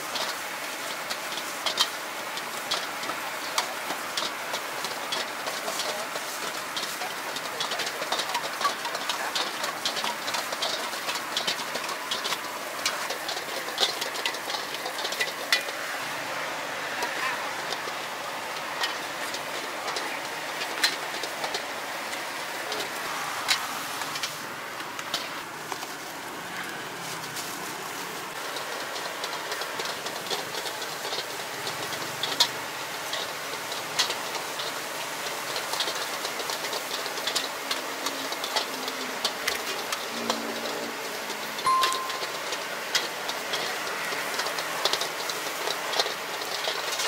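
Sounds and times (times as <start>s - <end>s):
food frying: 0.0s - 47.0s
gas burner hissing: 0.0s - 47.0s
metal utensils clinking on pan: 0.1s - 15.8s, 28.3s - 47.0s.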